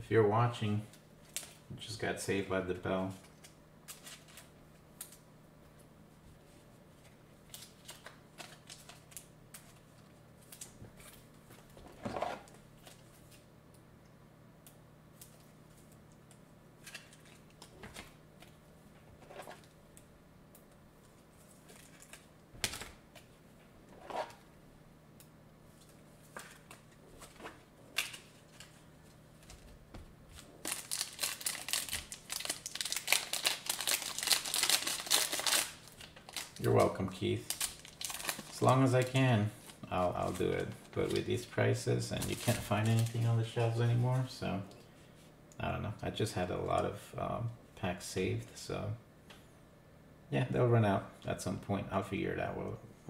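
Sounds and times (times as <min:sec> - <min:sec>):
faint steady hum: 0:00.0 - 0:53.0
foil wrapper crinkling: 0:21.4 - 0:23.0, 0:30.4 - 0:44.3.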